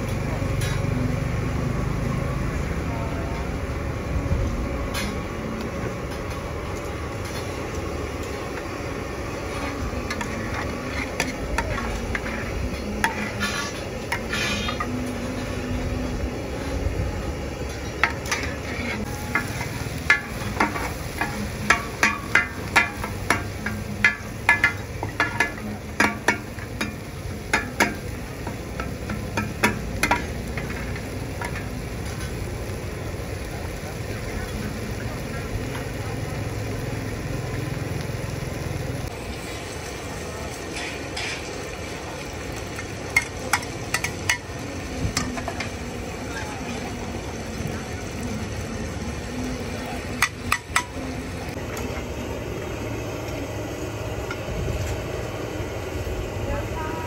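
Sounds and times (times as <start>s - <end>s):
food sizzling in a frying pan: 0.0s - 57.0s
metal spatulas clanking on pan: 9.5s - 15.0s, 17.7s - 32.4s, 43.1s - 44.5s, 50.2s - 51.0s.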